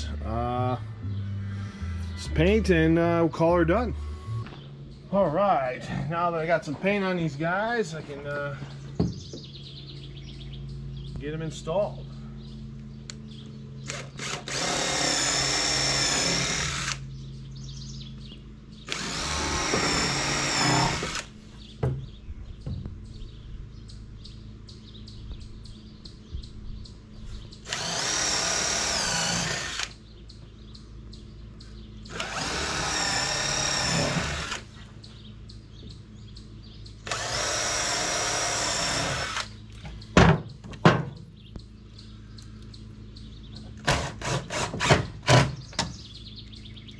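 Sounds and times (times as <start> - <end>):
cordless drill whining: 13.8 - 17.0, 18.9 - 21.3, 27.6 - 30.0, 32.1 - 34.6, 37.0 - 39.5.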